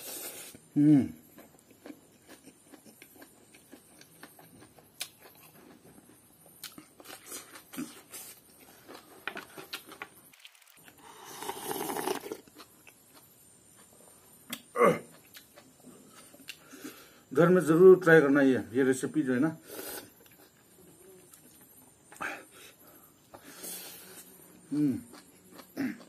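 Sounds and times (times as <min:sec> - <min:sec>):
soft chewing and lip smacks: 0:01.3 - 0:10.1, 0:12.4 - 0:16.8, 0:20.2 - 0:22.2, 0:23.1 - 0:26.0
slurping broth: 0:10.4 - 0:12.5.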